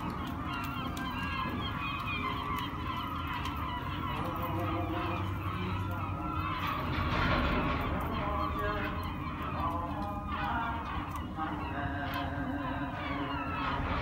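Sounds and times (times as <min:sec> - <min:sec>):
flock of waterbirds calling: 0:00.0 - 0:14.0.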